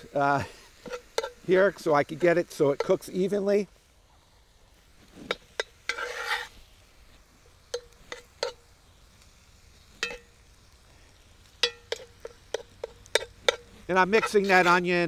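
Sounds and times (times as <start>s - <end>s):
utensil scraping pot: 0.4s - 3.2s, 5.0s - 6.6s, 7.7s - 8.6s, 10.0s - 10.3s, 11.6s - 15.0s
metal utensil clinking on pot: 10.0s - 10.3s, 11.6s - 14.4s.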